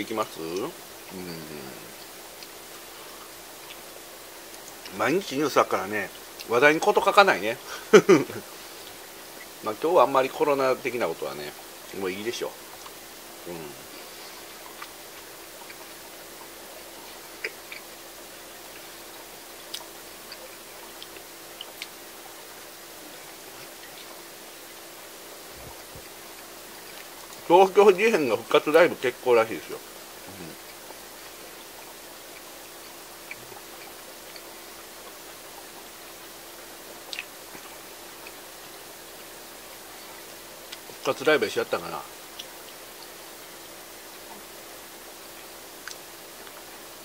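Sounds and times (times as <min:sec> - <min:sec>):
faint low hum: 0:00.0 - 0:47.0
steady hiss: 0:00.0 - 0:47.0
small clicks and ticks: 0:04.5 - 0:04.9.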